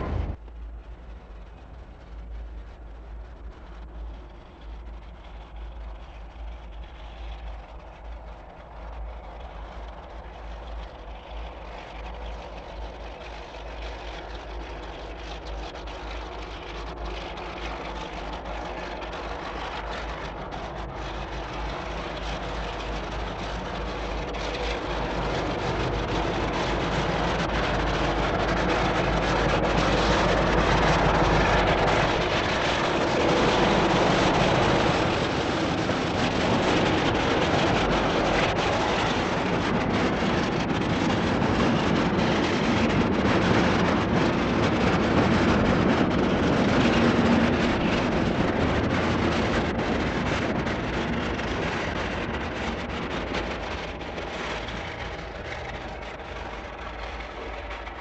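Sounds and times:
freight train passing: 0.0s - 5.8s, 13.1s - 58.0s
diesel locomotive engine under load: 0.0s - 58.0s
steady low hum: 0.0s - 58.0s.

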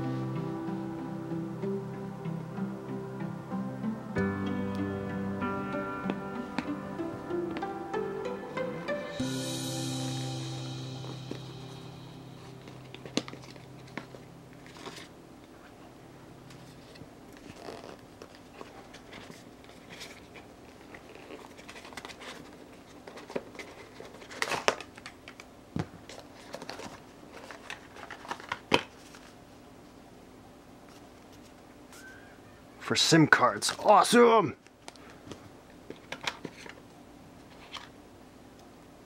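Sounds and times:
background music: 0.0s - 15.0s.

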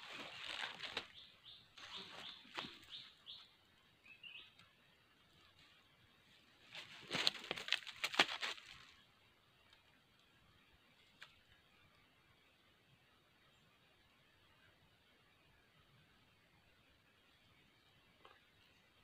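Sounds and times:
dry leaves rustling and crackling: 0.0s - 1.2s, 6.6s - 9.0s.

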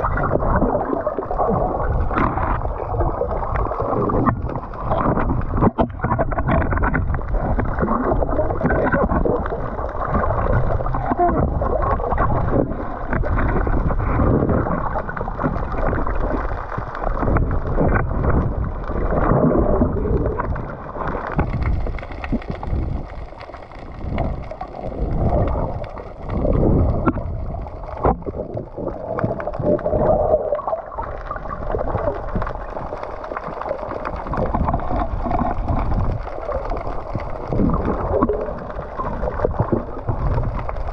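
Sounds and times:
muffled underwater water noise: 0.0s - 40.9s.

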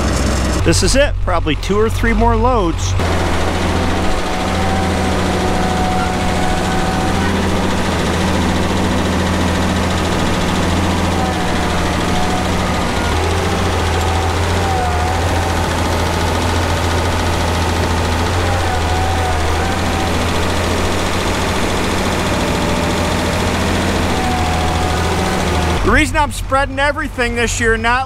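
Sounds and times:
tractor engine running: 0.0s - 28.0s.

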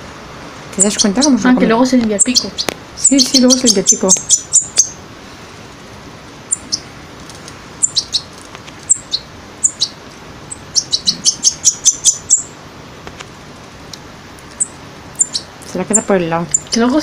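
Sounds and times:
chick begging chirps: 0.8s - 1.4s, 2.1s - 5.0s, 6.5s - 6.9s, 7.8s - 12.6s, 14.5s - 16.8s.

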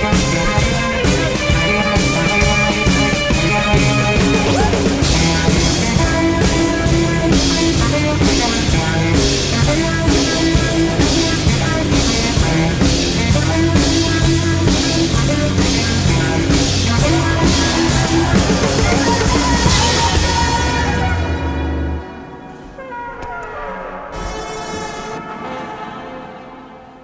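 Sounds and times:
drum kit cymbal beat: 0.0s - 20.8s
guitar: 0.0s - 22.8s
live band playing: 0.0s - 26.2s
saxophone: 0.0s - 27.0s.

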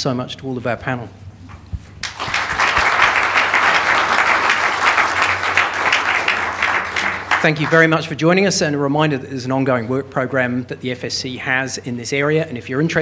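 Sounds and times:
audience applauding: 2.0s - 7.9s.

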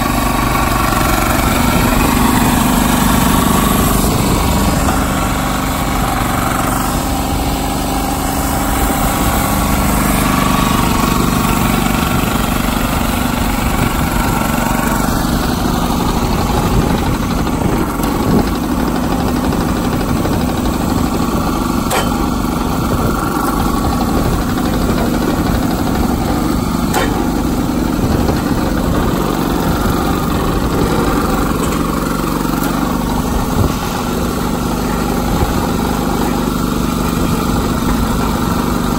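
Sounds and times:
small engine running: 0.0s - 38.9s
sharp knocks of logs: 26.8s - 27.4s.

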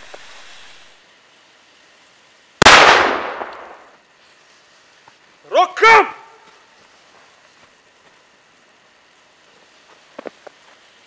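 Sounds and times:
firecracker bang in snow: 2.6s - 3.9s.

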